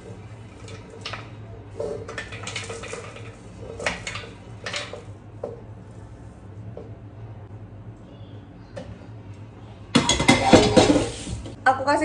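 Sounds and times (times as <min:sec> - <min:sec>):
steady low hum: 0:00.0 - 0:12.0
dishes and utensils clinking: 0:10.0 - 0:11.2.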